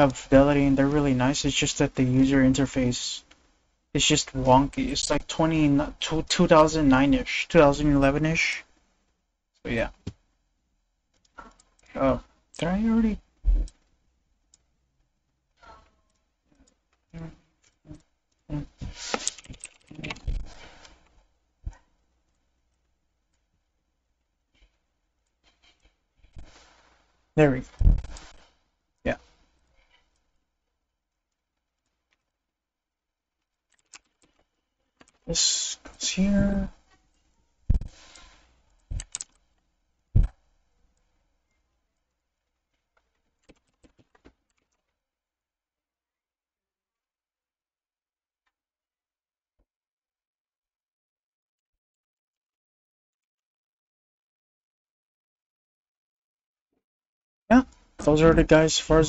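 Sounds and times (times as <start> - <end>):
mouse and keyboard clicks: 37.7 - 39.4
computer keyboard typing: 38.9 - 39.4.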